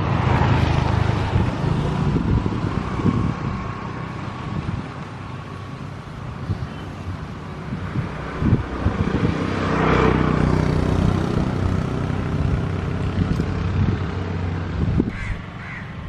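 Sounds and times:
vehicle engine passing: 7.9 - 15.0.

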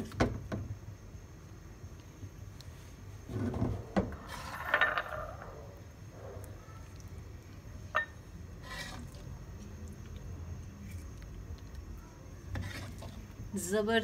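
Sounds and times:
food slithering into dish: 8.5 - 11.2.

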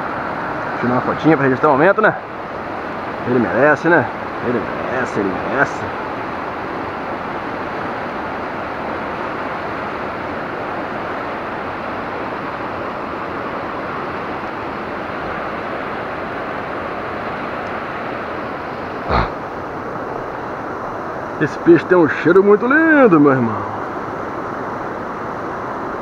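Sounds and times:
river rapids rushing: 0.0 - 20.2.

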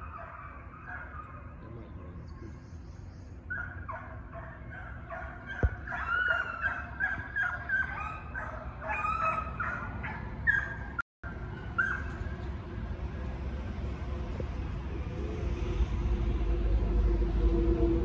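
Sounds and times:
hounds baying: 0.0 - 2.1, 3.4 - 11.0.

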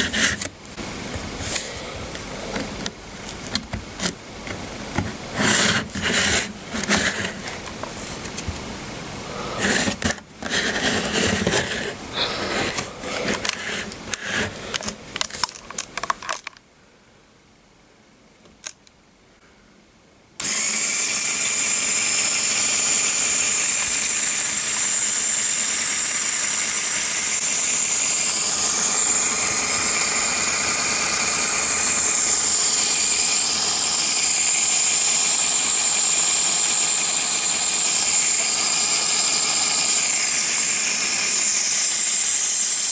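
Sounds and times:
small electric motor running: 0.0 - 0.5, 5.3 - 7.6, 9.2 - 14.9, 20.4 - 42.9
plastic bricks clicking: 12.6 - 16.6.

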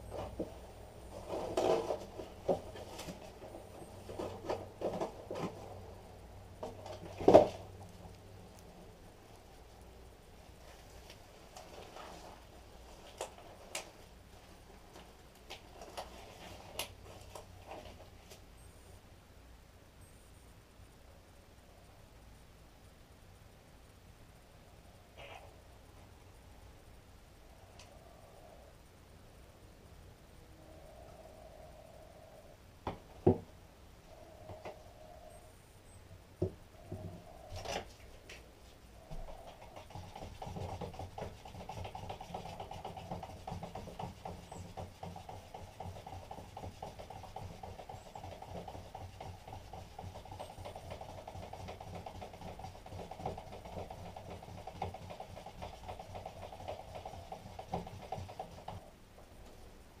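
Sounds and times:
stick stirring in plastic cup: 39.1 - 58.8.

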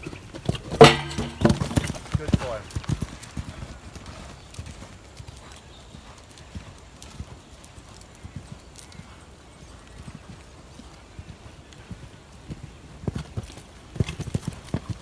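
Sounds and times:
horse hoofbeats on sand: 0.0 - 15.0.

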